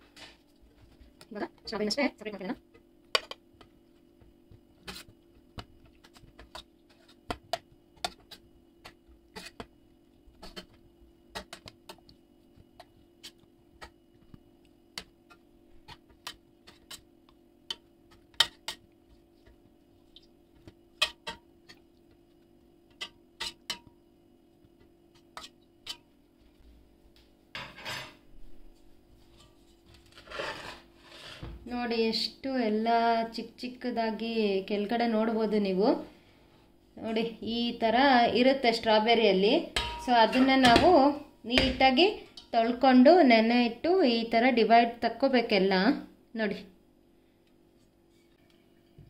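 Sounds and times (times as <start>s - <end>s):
faint steady hum: 0.0s - 49.0s
metal spoon clinking on pot: 39.8s - 40.5s.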